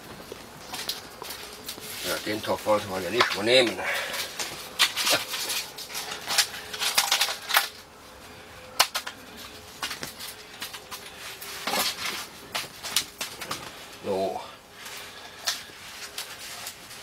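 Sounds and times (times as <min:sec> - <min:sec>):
plastic plant pots clacking: 0:00.2 - 0:07.8, 0:08.8 - 0:13.8.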